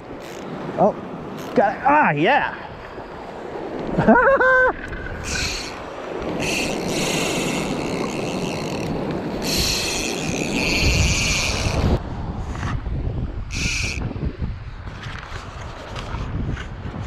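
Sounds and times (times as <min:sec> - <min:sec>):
fishing reel drag buzzing: 0:00.2 - 0:00.4, 0:01.4 - 0:01.6, 0:05.1 - 0:12.0, 0:13.5 - 0:14.0
wind noise on microphone: 0:03.8 - 0:17.0.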